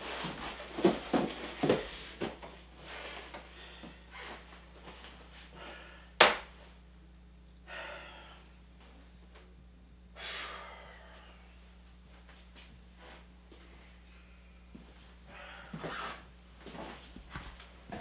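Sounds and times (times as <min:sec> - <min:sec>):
low steady hum: 0:00.0 - 0:18.0
man breathing out heavily: 0:05.5 - 0:06.2, 0:07.6 - 0:08.6, 0:10.2 - 0:11.6, 0:15.3 - 0:16.3.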